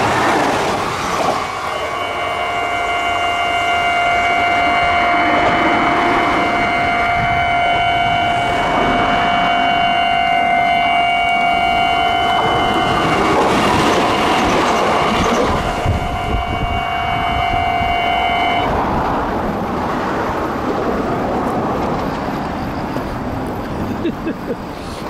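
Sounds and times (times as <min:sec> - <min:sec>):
train rushing by: 0:00.0 - 0:25.0
level crossing alarm ringing: 0:01.4 - 0:18.7.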